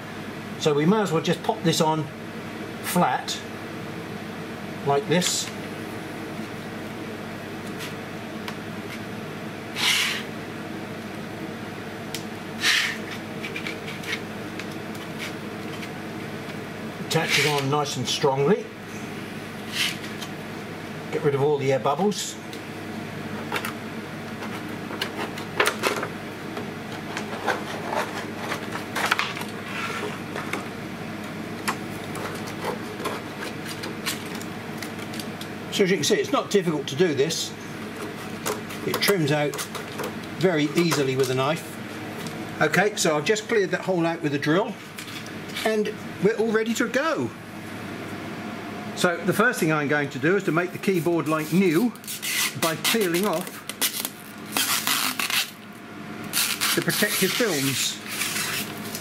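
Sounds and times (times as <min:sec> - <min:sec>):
steady background hum: 0:00.0 - 0:59.0
hands rubbing plastic film: 0:51.4 - 0:55.6, 0:56.3 - 0:59.0.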